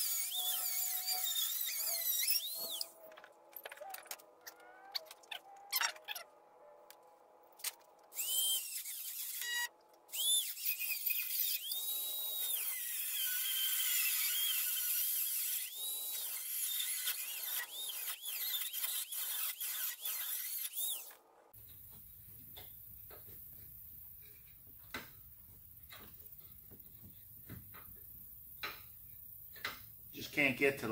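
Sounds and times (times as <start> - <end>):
rotary tool cutting metal: 0.0 - 3.1, 8.1 - 21.2.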